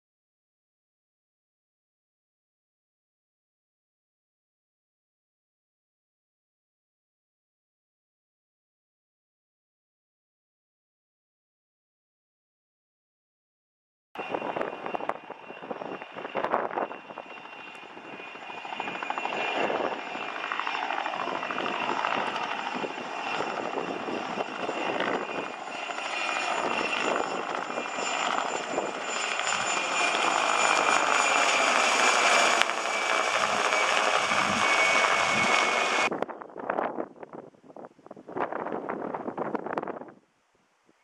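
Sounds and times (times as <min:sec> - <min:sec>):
helicopter flying past: 0:14.2 - 0:36.2
steady high whine: 0:14.2 - 0:36.2.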